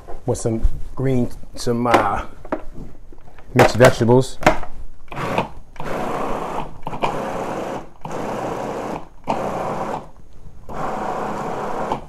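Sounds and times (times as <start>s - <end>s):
food processor motor: 5.1s - 10.1s, 10.7s - 12.0s.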